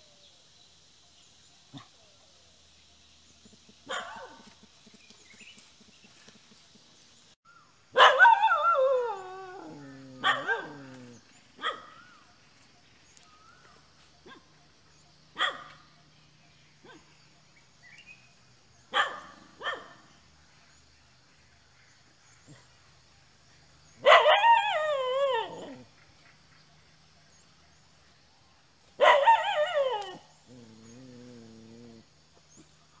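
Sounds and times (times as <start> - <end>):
dogs barking: 3.8 - 4.5, 7.9 - 12.2, 15.3 - 15.9, 16.8 - 17.1, 18.9 - 20.1, 24.0 - 25.9, 29.0 - 30.2
dog howling: 8.0 - 11.8, 24.0 - 25.8.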